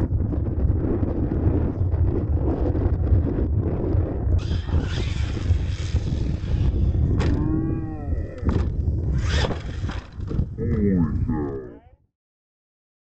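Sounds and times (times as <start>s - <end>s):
wind buffeting microphone: 0.0s - 11.8s
toy monster truck driving on dirt: 2.8s - 10.6s.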